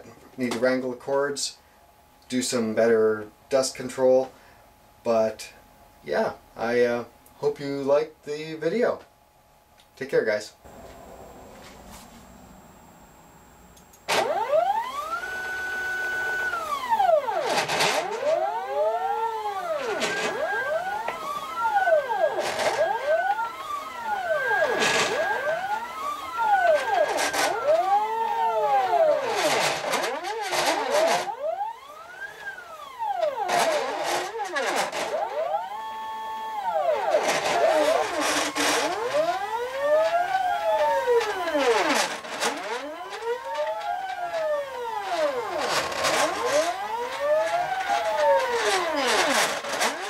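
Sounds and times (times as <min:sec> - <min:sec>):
stepper motors whining: 0:10.7 - 0:50.0.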